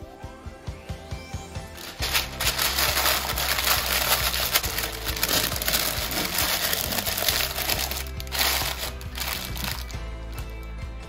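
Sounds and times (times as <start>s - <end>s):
background music: 0.0s - 11.0s
baking paper crinkling: 1.8s - 10.0s.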